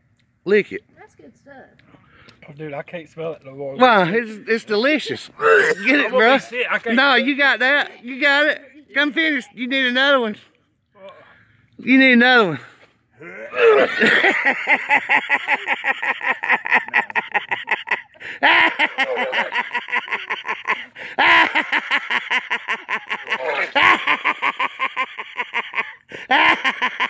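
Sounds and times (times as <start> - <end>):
person laughing breathlessly: 13.5 - 27.0.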